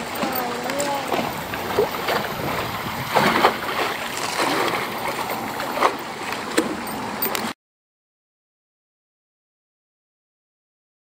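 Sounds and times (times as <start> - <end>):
choppy water lapping and splashing: 0.0 - 7.5.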